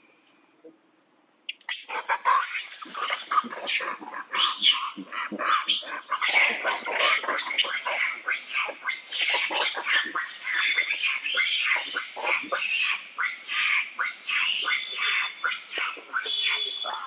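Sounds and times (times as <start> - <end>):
monkeys screaming and shrieking: 1.6 - 17.0.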